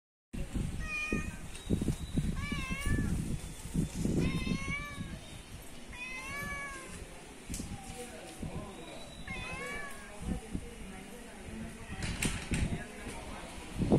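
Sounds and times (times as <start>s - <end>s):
cat meowing: 0.8s - 1.5s, 2.3s - 3.3s, 4.2s - 5.3s, 5.9s - 7.0s, 9.2s - 10.1s.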